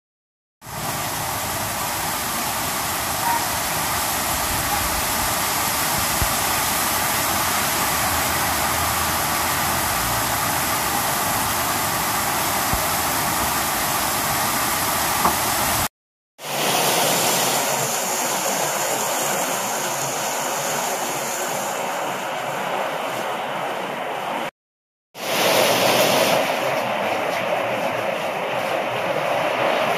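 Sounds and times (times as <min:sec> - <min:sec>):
heavy rain hissing: 0:00.6 - 0:24.5, 0:25.2 - 0:29.9.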